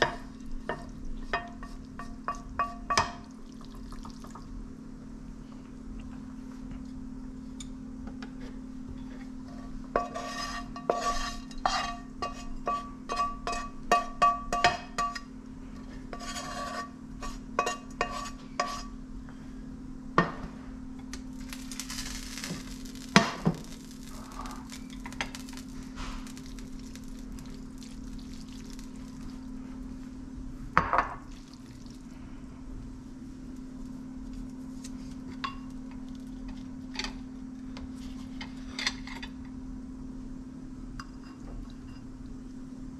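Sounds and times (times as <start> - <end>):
utensils clinking on cookware: 0.0 - 3.3, 10.0 - 15.3, 16.2 - 18.9.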